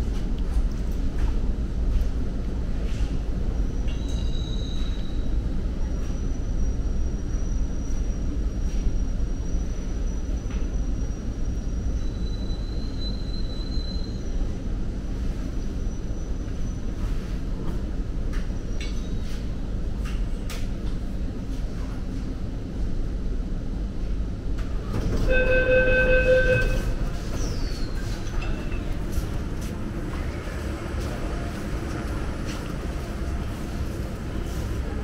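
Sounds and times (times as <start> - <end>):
train car rumble: 0.0 - 35.0
electronic door warning tone: 25.3 - 26.9.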